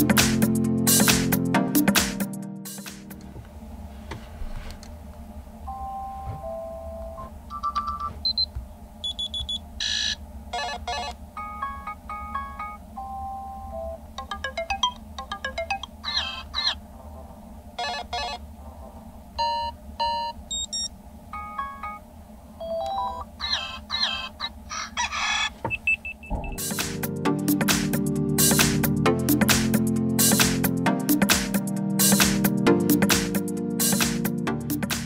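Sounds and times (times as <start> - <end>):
electronic alarm chimes and beeps: 5.7 - 16.4, 19.4 - 22.0, 25.7 - 26.7.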